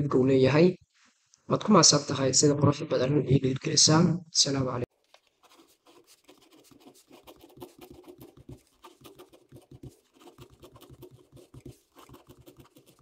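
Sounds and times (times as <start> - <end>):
ballpoint pen writing on paper: 5.4 - 13.0.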